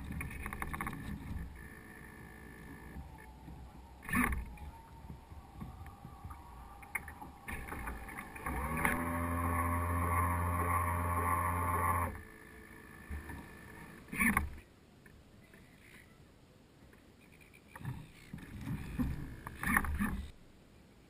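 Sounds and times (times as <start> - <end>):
water slapping hull: 0.0 - 12.3
servo whining: 0.0 - 14.6
water lapping at hull: 0.0 - 14.6, 17.4 - 20.4.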